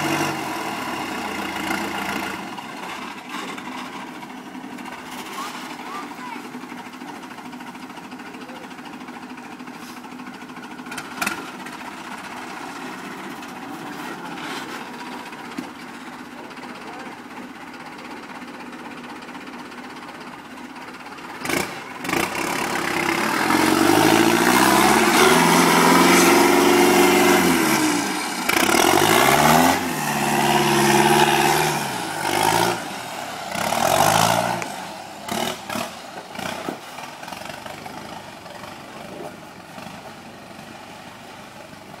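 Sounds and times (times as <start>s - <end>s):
diesel engine revving: 0.0s - 42.0s.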